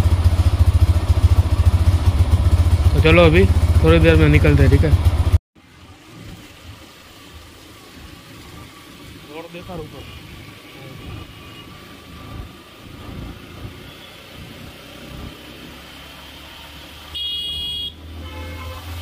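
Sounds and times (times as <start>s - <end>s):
motorcycle engine accelerating: 0.0s - 6.7s, 10.0s - 18.2s
vehicle horn: 17.1s - 19.0s.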